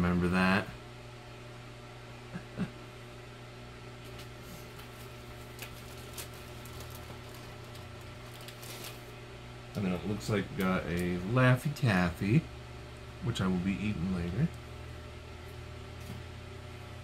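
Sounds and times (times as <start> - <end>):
low room hum: 0.0 - 17.0
packaging clicks and rustles: 4.8 - 9.1.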